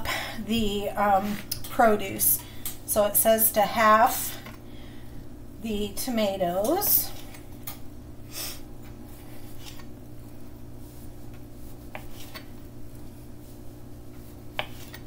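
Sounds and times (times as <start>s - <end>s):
steady low hum: 0.0s - 15.0s
knife cutting on a cutting board: 11.8s - 12.7s, 14.2s - 15.0s.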